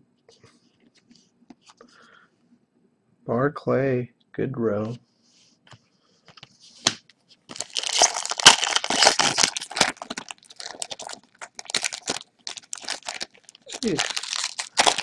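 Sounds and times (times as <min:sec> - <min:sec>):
wrapper tearing and crinkling: 0:06.8 - 0:15.0.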